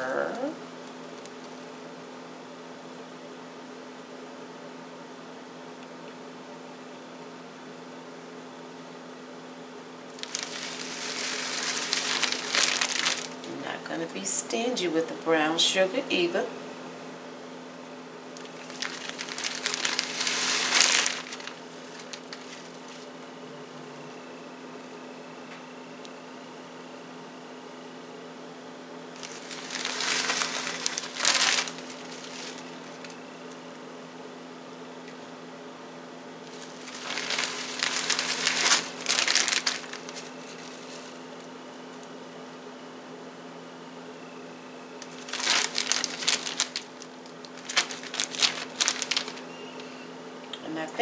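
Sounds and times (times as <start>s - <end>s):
paper bag crinkling: 10.1s - 13.9s, 18.4s - 23.2s, 29.2s - 33.2s, 36.4s - 41.5s, 45.0s - 50.0s.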